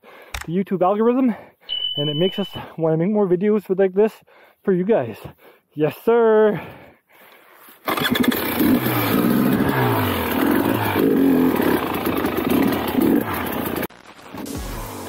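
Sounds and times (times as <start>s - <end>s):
dirt bike engine revving: 7.9s - 13.9s.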